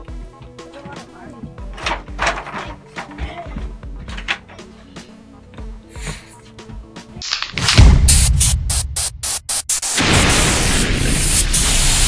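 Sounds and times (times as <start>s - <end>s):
static-like glitch noise: 8.0s - 12.0s.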